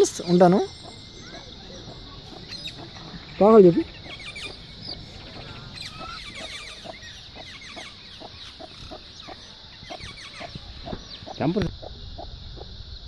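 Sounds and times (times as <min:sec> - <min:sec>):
chicks peeping: 0:00.4 - 0:13.0.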